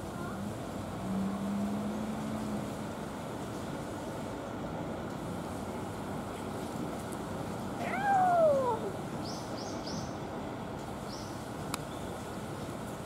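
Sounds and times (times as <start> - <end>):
cat meowing: 7.8 - 8.9.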